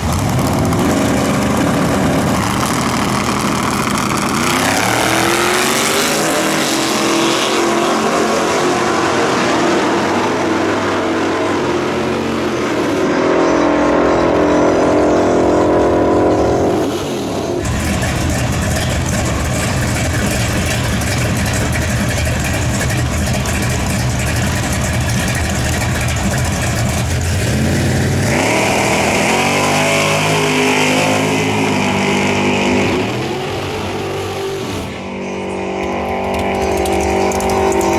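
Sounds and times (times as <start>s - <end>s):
car launching with rising pitch: 0.0s - 20.0s, 27.4s - 37.9s
car engine rumbling: 0.0s - 37.9s
pickup engine revving in burnout: 0.0s - 37.9s.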